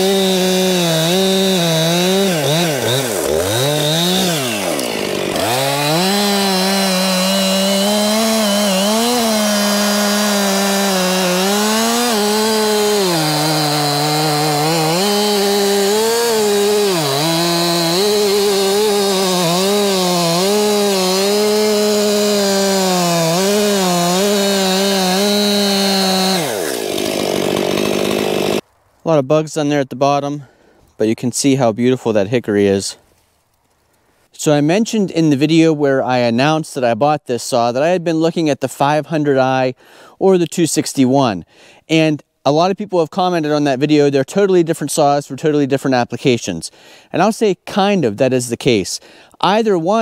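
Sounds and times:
chainsaw cutting log: 0:00.0 - 0:28.6.

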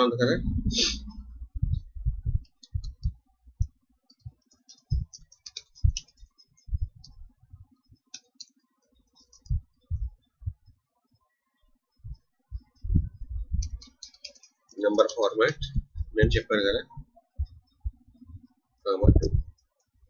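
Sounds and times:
keyboard typing: 0:02.4 - 0:07.2, 0:08.0 - 0:09.9, 0:13.6 - 0:15.3
mouse clicks: 0:02.4 - 0:07.2, 0:13.6 - 0:14.6.

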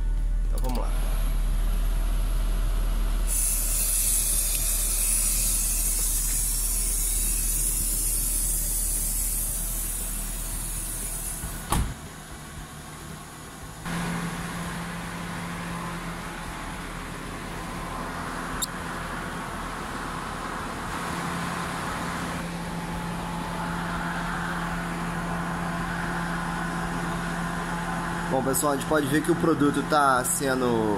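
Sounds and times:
car engine and blower running: 0:00.0 - 0:30.9
aerosol can hissing: 0:03.3 - 0:11.4
low hum: 0:12.3 - 0:29.0.

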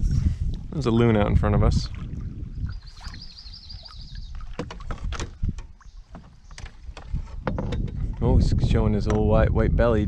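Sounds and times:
paddle splashing water: 0:00.9 - 0:08.3
birdsong trill: 0:02.6 - 0:04.6, 0:05.7 - 0:07.0.

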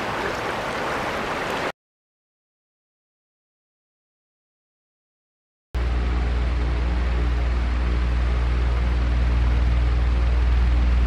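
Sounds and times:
electric fan humming: 0:05.8 - 0:11.0.

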